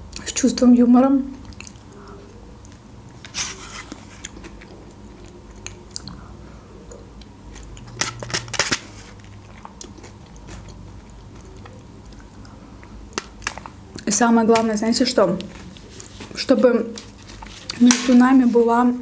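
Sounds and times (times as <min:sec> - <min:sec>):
chewing and mouth sounds: 0:01.4 - 0:03.3, 0:03.9 - 0:14.1.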